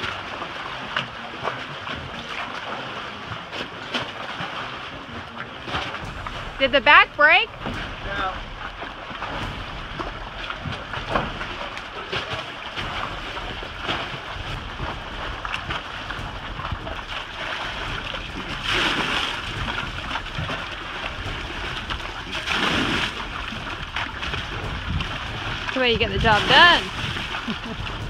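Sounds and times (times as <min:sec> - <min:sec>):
choppy water: 0:00.0 - 0:28.0
water splashing from bucket: 0:00.0 - 0:28.0
wind rushing: 0:06.0 - 0:12.0.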